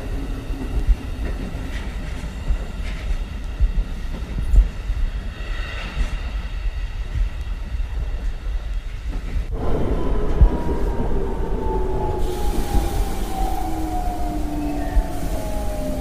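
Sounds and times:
train rumble: 0.0 - 16.0
falling whine: 9.5 - 16.0.

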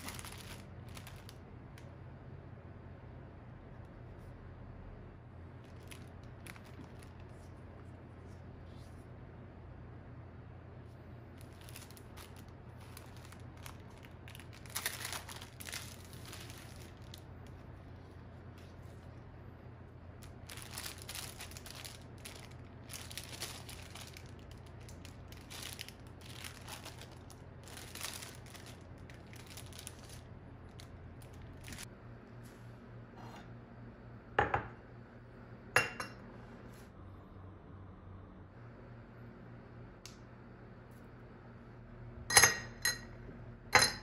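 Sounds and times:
plastic packaging crinkling: 0.0 - 1.4, 5.6 - 7.7, 11.4 - 19.2, 20.2 - 31.9
faint low hum: 0.0 - 44.0.

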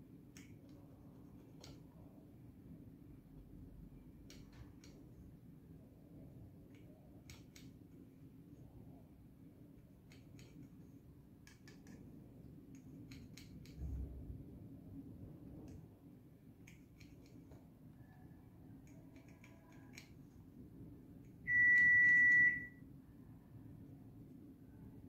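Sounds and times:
electronic beep: 21.5 - 22.8.

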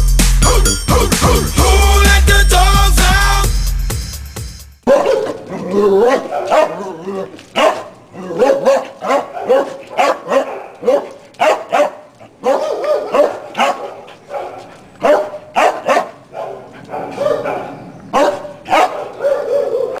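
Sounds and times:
dog barking: 4.8 - 20.0.

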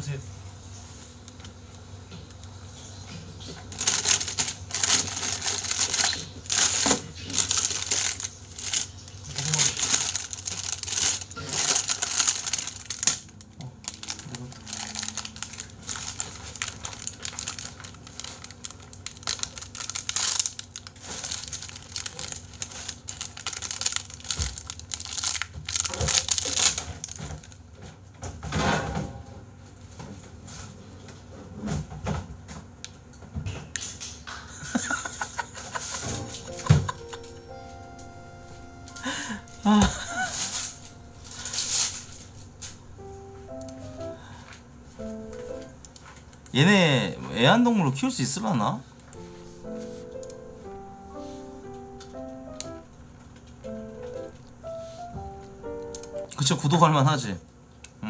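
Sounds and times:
crinkling rustling: 3.1 - 27.8, 39.0 - 44.1.

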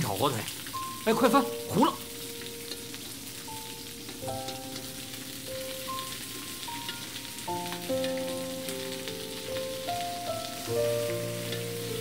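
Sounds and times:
ham sizzling in a wok: 0.0 - 12.0
soft background music: 0.0 - 12.0.

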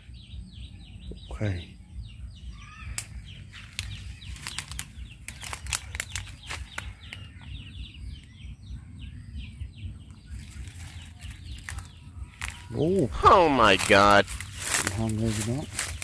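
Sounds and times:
twigs snapping: 2.9 - 7.2, 10.4 - 16.0
footsteps crunching dry leaves: 3.5 - 7.0, 10.4 - 16.0.

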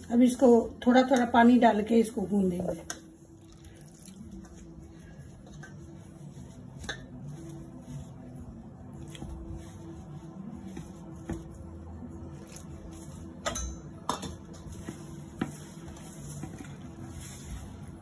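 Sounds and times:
hands mixing dough: 0.0 - 18.0
water pouring: 3.4 - 4.4.

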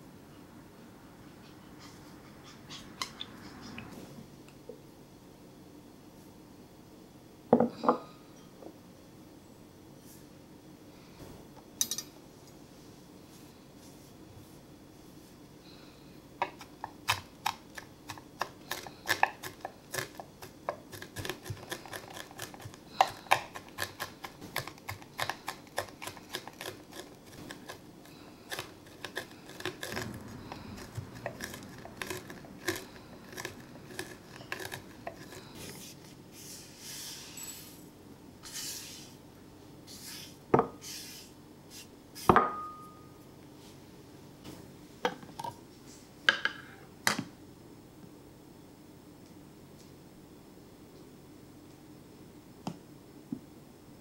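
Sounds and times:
knife scraping board: 18.7 - 37.4
knocks with glassy ring: 42.4 - 43.0.

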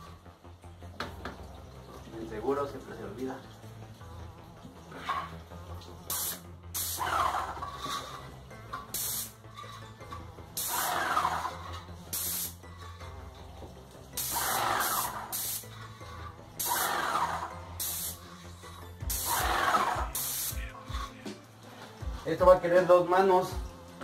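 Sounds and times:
paint spray gun hissing: 6.1 - 7.1, 8.9 - 9.4, 10.6 - 11.3, 12.1 - 12.6, 14.2 - 15.7, 16.6 - 18.3, 19.0 - 20.6.

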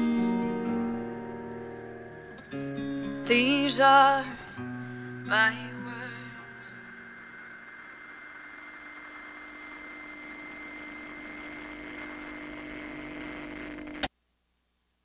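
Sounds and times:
faint steady whine: 0.0 - 14.1
room tone hum and hiss: 0.0 - 15.0
click: 13.5 - 14.1.

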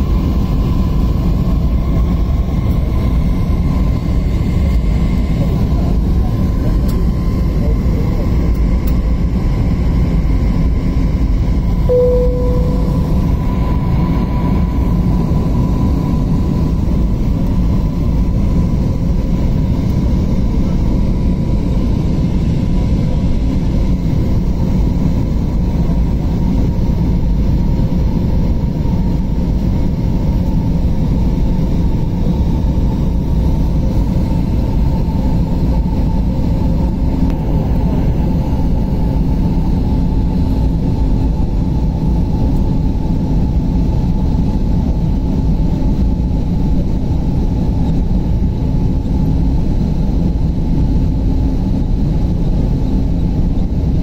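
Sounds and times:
airliner cabin engine noise: 0.0 - 54.0
faint steady whine: 0.0 - 54.0
brief single tone: 11.9 - 14.8.

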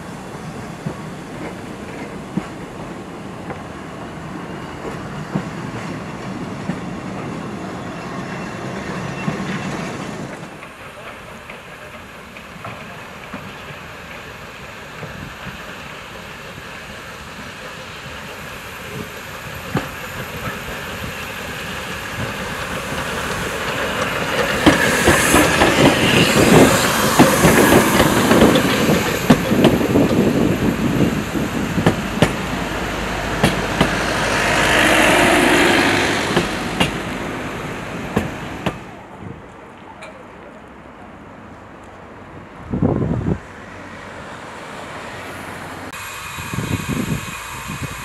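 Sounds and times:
steam locomotive running past: 0.0 - 48.0
steam hiss: 7.5 - 39.0, 44.4 - 48.0
wheels clicking over rail joints: 18.9 - 37.2.

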